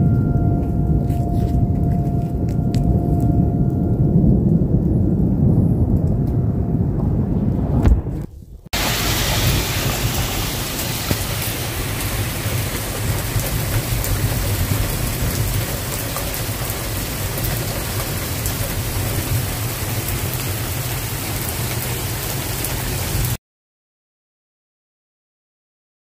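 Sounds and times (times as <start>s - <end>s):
low rumble: 0.0s - 21.2s
raindrops ticking: 0.2s - 6.4s, 8.8s - 23.4s
heavy rain hissing: 7.8s - 23.4s.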